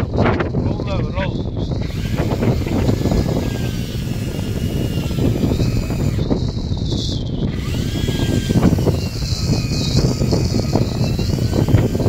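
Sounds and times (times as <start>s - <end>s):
boat engine rumble: 0.0s - 12.0s
fishing reel whining: 0.0s - 12.0s
wind: 0.0s - 12.0s.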